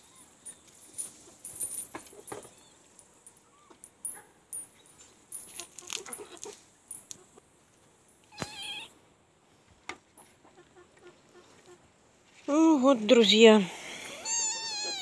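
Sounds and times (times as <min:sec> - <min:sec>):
rustling: 0:00.0 - 0:08.9
high-pitched animal cry: 0:08.3 - 0:08.9, 0:14.1 - 0:15.0.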